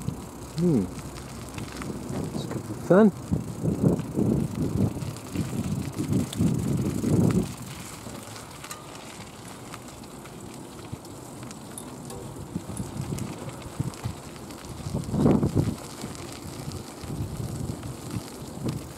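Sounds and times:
wind buffeting microphone: 0:00.0 - 0:09.8, 0:11.8 - 0:18.9.

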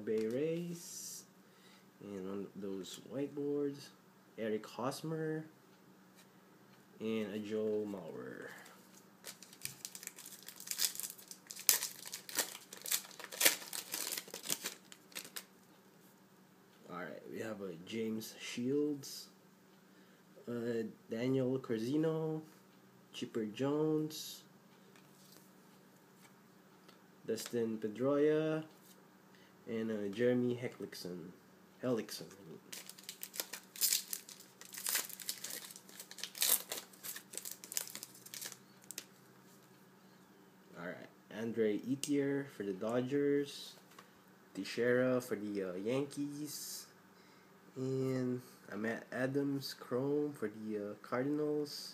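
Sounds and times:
faint steady hum: 0:00.0 - 0:51.9
foil wrapper crinkling and tearing: 0:09.2 - 0:15.5, 0:32.7 - 0:39.1.

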